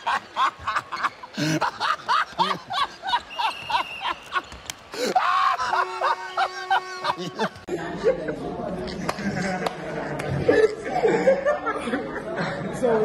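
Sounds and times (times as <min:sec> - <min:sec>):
men laughing hard: 0:00.0 - 0:07.7.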